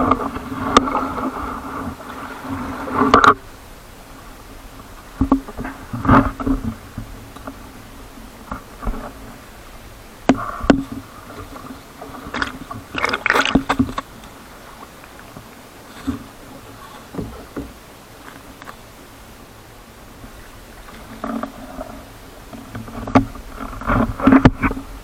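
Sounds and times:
muffled water rush: 0.0 - 25.0
waves splashing against hull: 0.0 - 25.0
sharp knocks on hull: 10.2 - 11.0.

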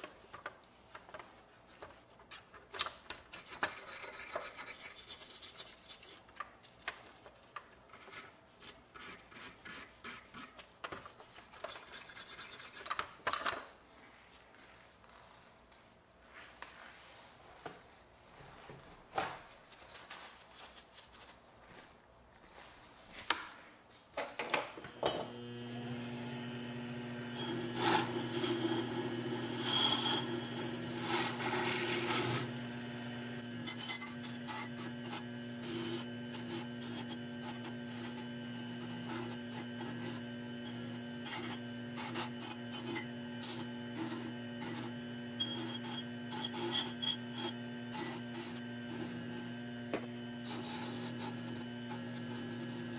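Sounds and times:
lathe motor humming: 24.9 - 52.9
metal part rasping on spinning wheel: 27.4 - 32.5, 33.4 - 49.6, 50.4 - 52.9.

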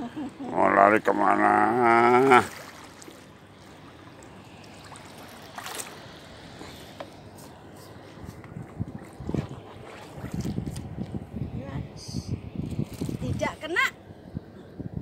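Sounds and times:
water washing along shore: 0.5 - 11.1.

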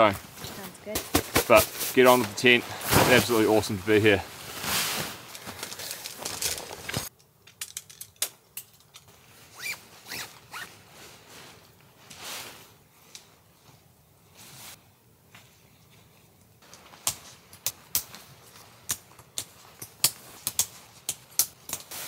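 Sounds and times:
nylon tent fabric rustling: 0.1 - 7.1, 9.2 - 18.8
tent poles swishing and scraping: 0.2 - 7.1, 9.1 - 13.7, 14.3 - 22.0.

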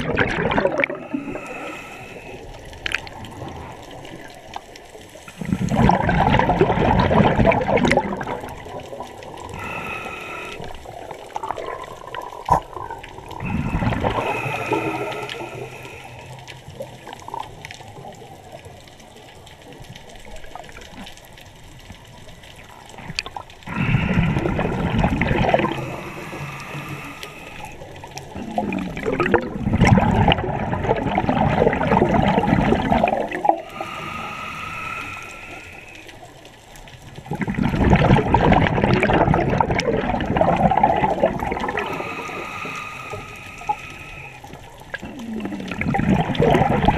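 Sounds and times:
exhaled bubbles underwater: 0.0 - 46.9
regulator hiss: 25.6 - 28.0, 33.7 - 36.3, 41.8 - 44.5.

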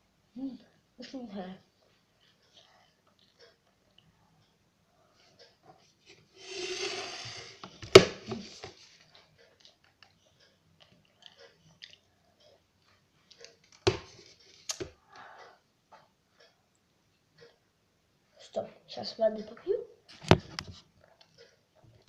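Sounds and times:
person chewing candy: 2.2 - 4.4, 9.0 - 13.8
wet mouth clicks: 10.8 - 12.1.

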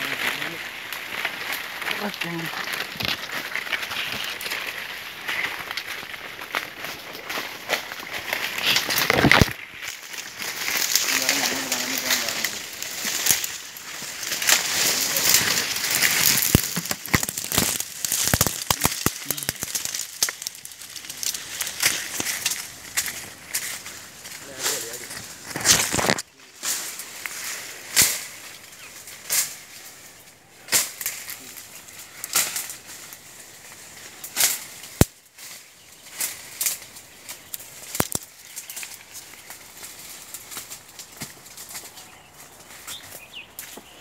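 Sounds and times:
branches snapping: 0.0 - 44.0
dry leaves and twigs crackling: 0.0 - 44.0.

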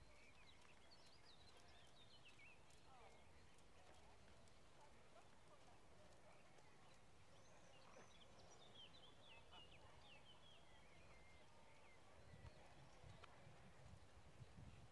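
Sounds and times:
faint outdoor background noise: 0.0 - 14.9.

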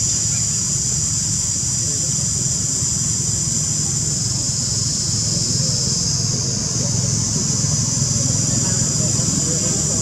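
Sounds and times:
insects droning: 0.0 - 10.0
low engine hum: 3.4 - 10.0
faint distant voices: 6.3 - 10.0.

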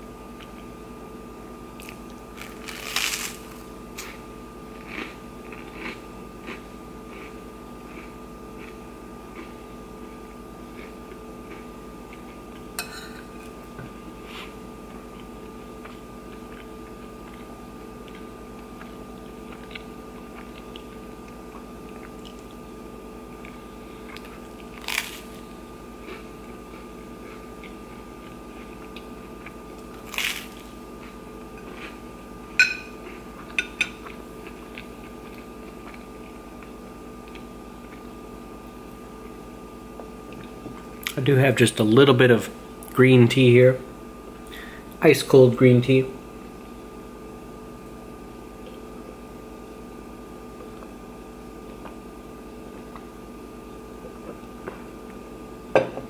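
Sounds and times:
steady low hum: 0.0 - 56.0
crunchy bite: 1.8 - 4.2, 23.4 - 28.0, 28.7 - 31.1
person chewing: 1.8 - 12.8, 14.2 - 38.2
fork scraping on ceramic plate: 12.8 - 13.3.

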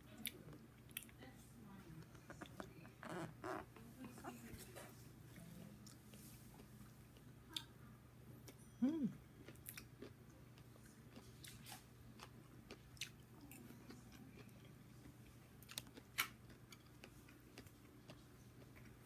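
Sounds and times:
faint low hum: 0.0 - 19.0
person chewing food: 2.1 - 4.3, 9.4 - 19.0.

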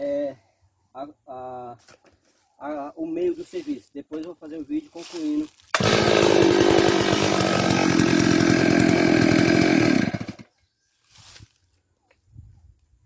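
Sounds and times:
chainsaw running at high revs: 5.8 - 10.5.

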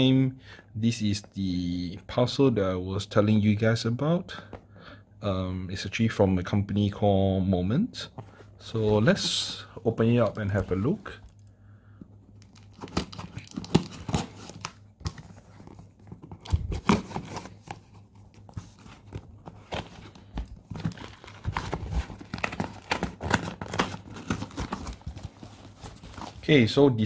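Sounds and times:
crinkling: 12.3 - 26.6.

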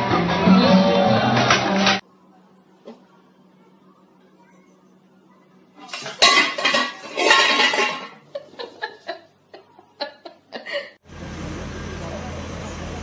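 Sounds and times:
metal pot lid clattering: 5.8 - 8.2.

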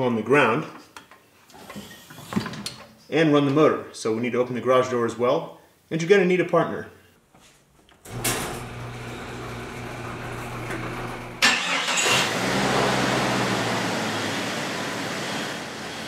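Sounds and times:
garage door opener motor hum: 8.0 - 11.4
car engine cranking and idling: 8.1 - 16.0.

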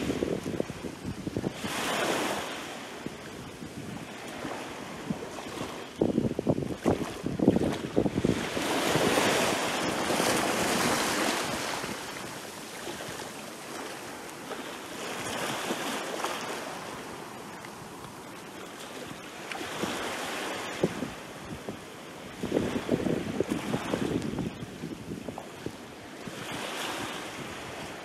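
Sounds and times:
small waves lapping: 0.0 - 28.0
water splashes: 6.6 - 21.0.

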